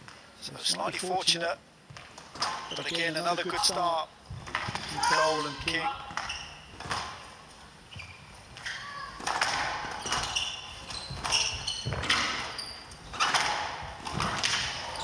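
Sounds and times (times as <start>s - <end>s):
shoes squeaking on court floor: 2.1s - 15.0s
squash ball knocks: 13.1s - 14.9s.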